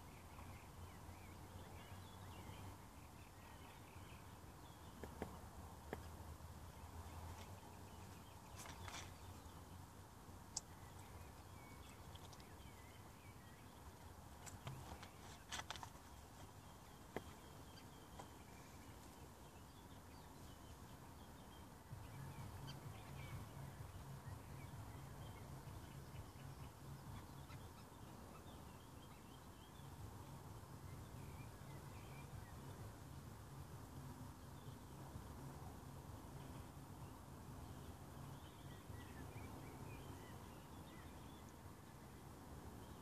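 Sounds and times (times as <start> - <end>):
distant birds chirping: 0.0 - 43.0
soft clicks: 10.5 - 11.1.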